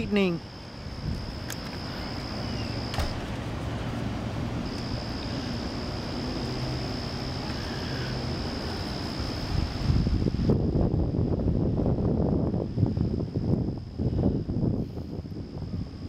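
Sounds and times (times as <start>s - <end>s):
high-pitched whine: 0.0s - 11.5s.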